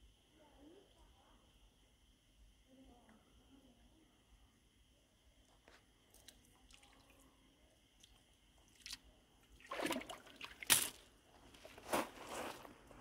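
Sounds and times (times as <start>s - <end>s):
water drips and splashes: 6.1s - 7.2s, 8.0s - 11.0s
splashing scrape on gravel: 11.7s - 12.7s.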